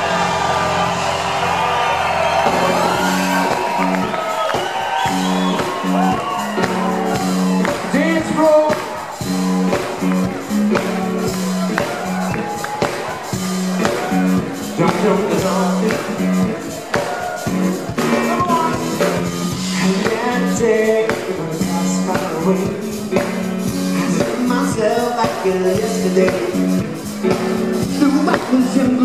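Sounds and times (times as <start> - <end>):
funk band playing: 0.0 - 29.0
man singing: 7.6 - 9.0, 14.6 - 17.0, 18.1 - 29.0.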